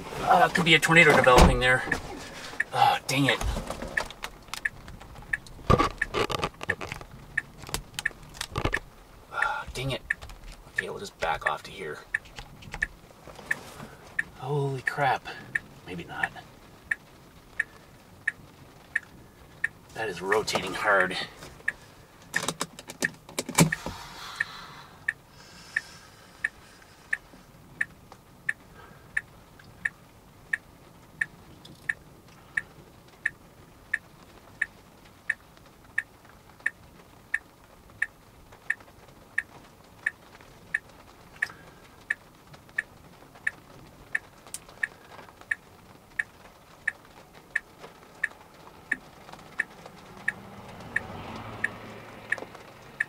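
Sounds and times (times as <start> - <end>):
faint low background noise: 0.0 - 53.0
turn-signal clicking: 3.9 - 11.5, 21.4 - 25.2.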